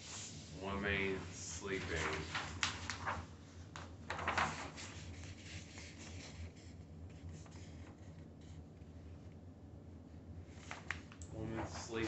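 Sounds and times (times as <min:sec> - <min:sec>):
paper rustling: 0:00.0 - 0:08.9, 0:10.5 - 0:12.0.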